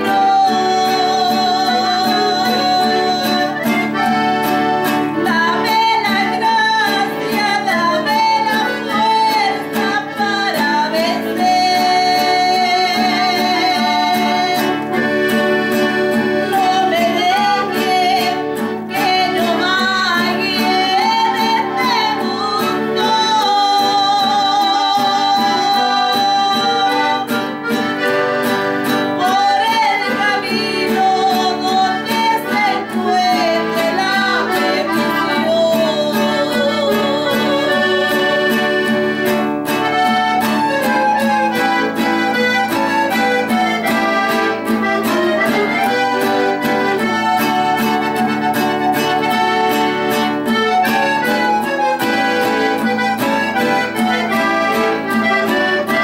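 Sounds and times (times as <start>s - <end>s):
accordion: 0.0s - 56.0s
acoustic guitar: 0.0s - 56.0s
person singing: 0.0s - 56.0s.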